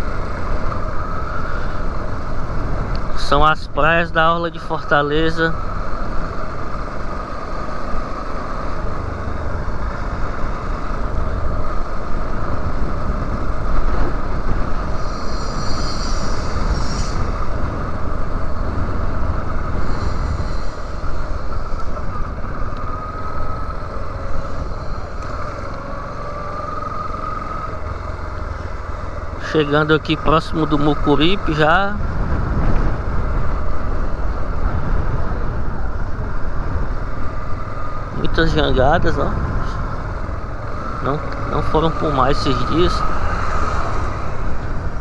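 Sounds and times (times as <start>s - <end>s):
heavy wind noise: 0.0s - 45.0s
motorcycle engine cruising: 0.0s - 45.0s
road noise: 0.0s - 45.0s.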